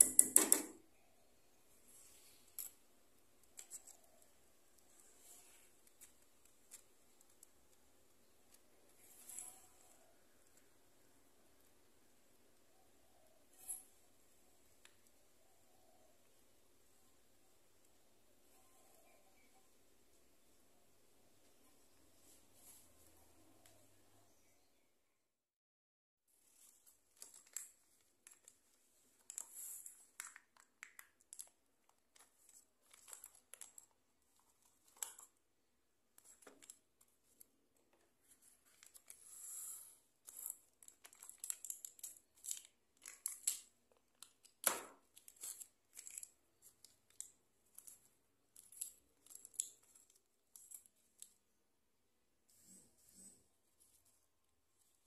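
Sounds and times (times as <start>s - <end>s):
parchment paper crinkling: 1.8s - 11.0s, 26.3s - 51.6s.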